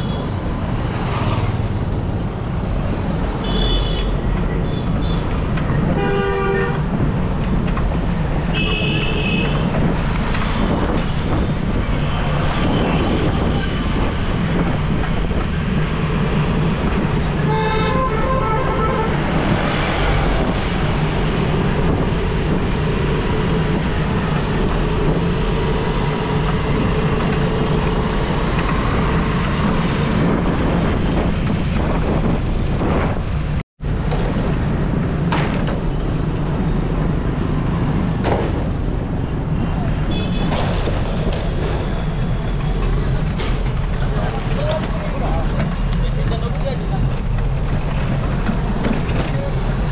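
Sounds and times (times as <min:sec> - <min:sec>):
road traffic rumble: 0:00.0 - 0:49.9
vehicle horns honking: 0:03.4 - 0:05.2, 0:06.0 - 0:06.8, 0:08.5 - 0:09.7, 0:17.4 - 0:19.2.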